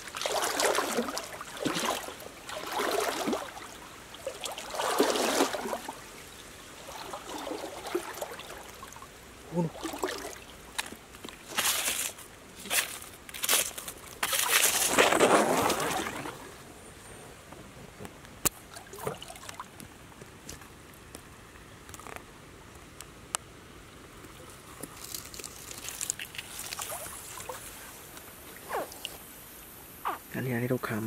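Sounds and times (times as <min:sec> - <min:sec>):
dry leaves and grass rustling: 0:10.6 - 0:16.4, 0:24.4 - 0:28.5.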